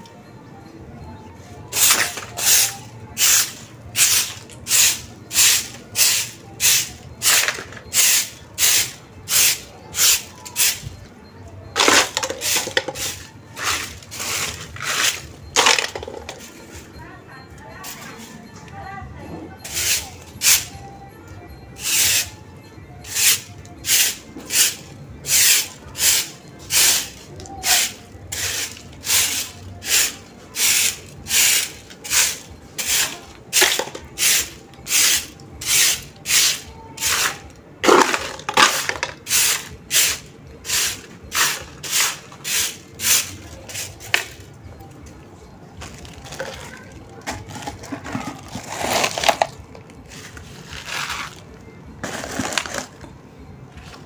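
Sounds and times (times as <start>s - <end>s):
broom sweeping damp ground: 11.8s - 16.9s, 23.1s - 44.4s
scraping and rustling: 45.8s - 53.1s.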